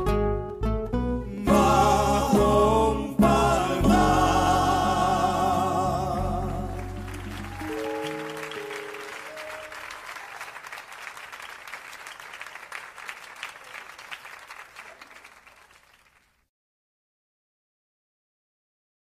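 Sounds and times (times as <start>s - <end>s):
held musical notes: 0.0s - 10.0s
audience applauding: 4.6s - 16.4s.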